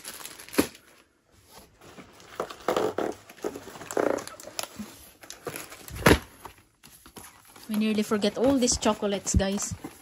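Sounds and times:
cardboard boxes scraping and creaking: 1.4s - 10.0s.

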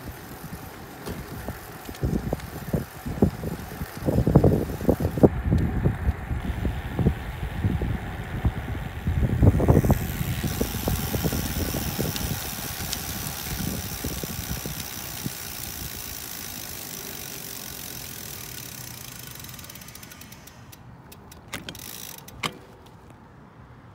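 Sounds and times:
wind buffeting microphone: 0.0s - 16.8s
tires rolling hiss: 0.0s - 23.8s
sharp clicks: 9.7s - 22.7s.

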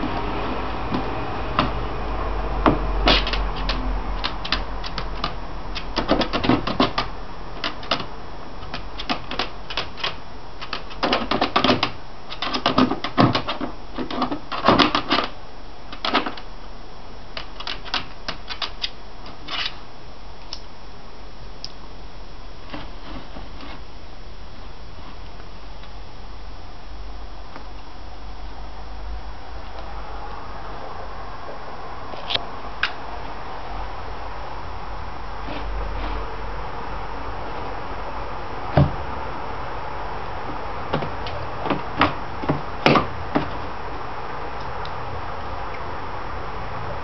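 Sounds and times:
dog claws clicking on plastic: 3.0s - 16.5s, 17.4s - 19.8s.

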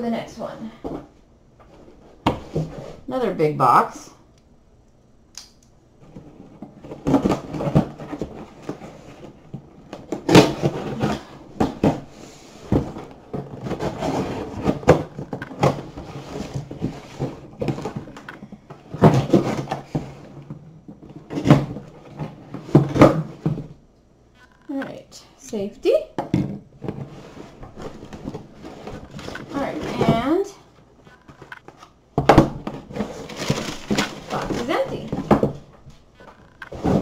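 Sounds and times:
cardboard scraping and rustling: 1.7s - 3.1s, 6.0s - 23.8s, 26.8s - 30.5s, 31.2s - 37.0s.

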